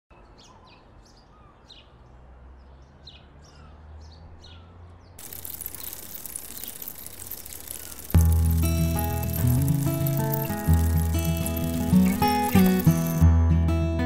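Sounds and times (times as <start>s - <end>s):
small birds chirping: 0.1s - 13.2s
grain mill grinding: 5.2s - 13.2s
music: 8.2s - 14.0s.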